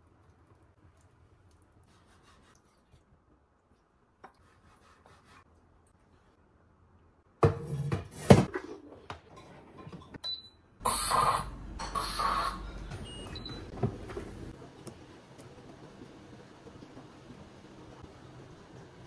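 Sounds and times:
steam venting hiss: 0:10.8 - 0:12.6.

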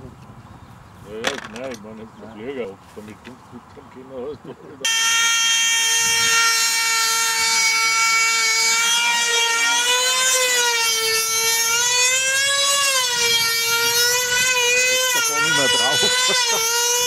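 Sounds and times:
model aircraft engine whining: 0:04.8 - 0:17.0.

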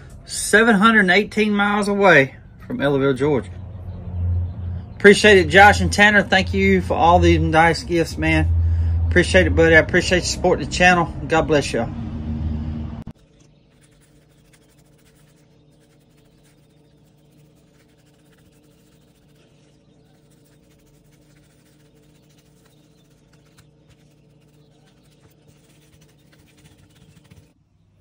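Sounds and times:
steady low hum: 0:00.0 - 0:28.0
paintbrush dabbing on leather: 0:13.7 - 0:27.6.

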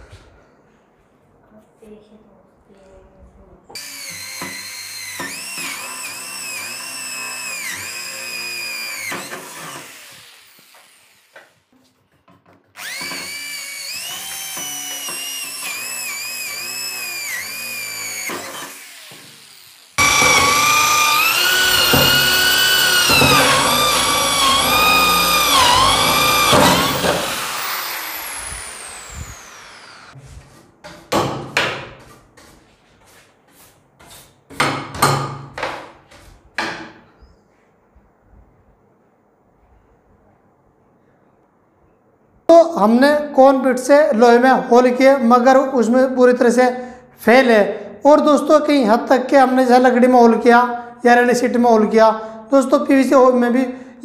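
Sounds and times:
electric drill whining: 0:03.8 - 0:11.4, 0:12.8 - 0:30.2
sharp knocks: 0:30.8 - 0:32.0.

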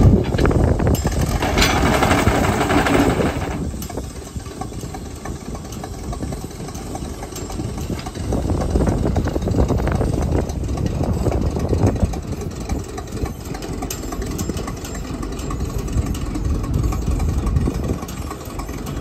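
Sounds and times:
locomotive engine rumbling: 0:00.0 - 0:19.0.

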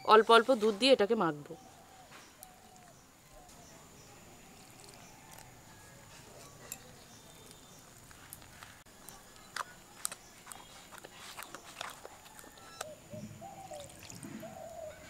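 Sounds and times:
wet batter squishing: 0:02.3 - 0:09.4.

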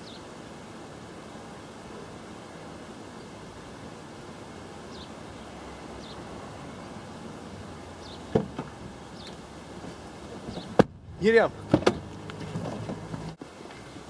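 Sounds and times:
steady outdoor hiss: 0:00.0 - 0:14.0
bird chirps: 0:04.9 - 0:05.2, 0:06.0 - 0:06.2, 0:08.0 - 0:08.3
knocks on car window: 0:08.3 - 0:08.8, 0:10.5 - 0:11.0.

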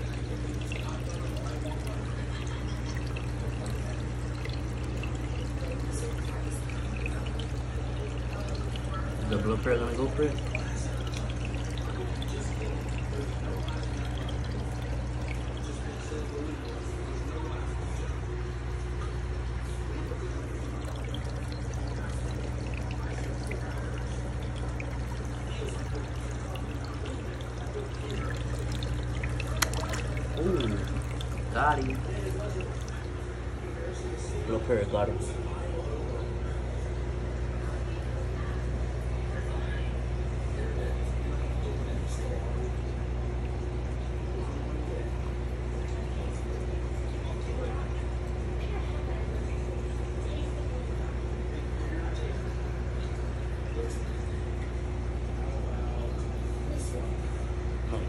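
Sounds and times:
water pouring into tank: 0:00.0 - 0:36.4
low constant hum: 0:00.0 - 0:58.0.

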